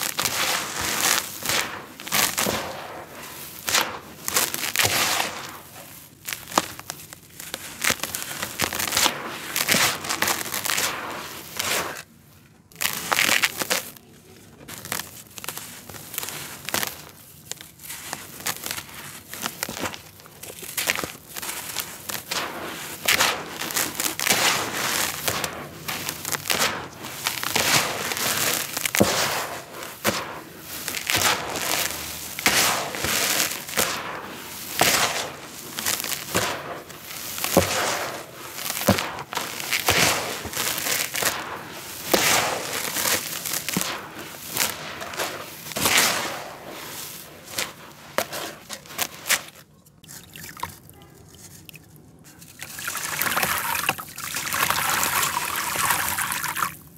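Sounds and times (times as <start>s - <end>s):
hands raking dry dirt: 0.0s - 56.9s.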